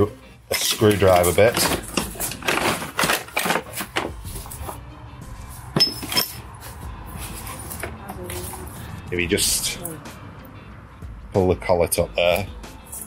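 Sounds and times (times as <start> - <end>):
faint background music: 0.0 - 13.0
metal tools clinking: 0.5 - 4.7, 5.8 - 6.8, 12.3 - 13.0.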